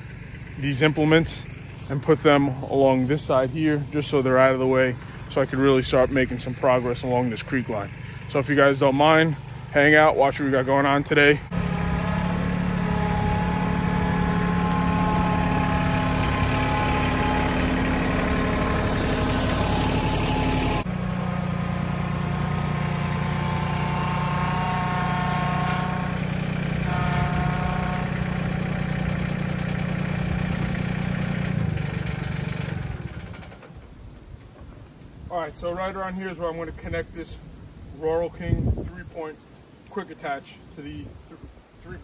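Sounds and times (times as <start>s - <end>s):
tractor diesel engine running: 0.0s - 34.9s
thin whine: 10.0s - 28.7s.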